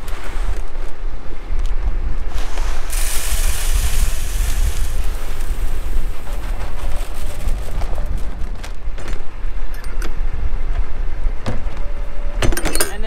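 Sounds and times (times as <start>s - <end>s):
wind rumble on microphone: 0.0s - 13.0s
seed poured into plastic box: 2.3s - 7.4s.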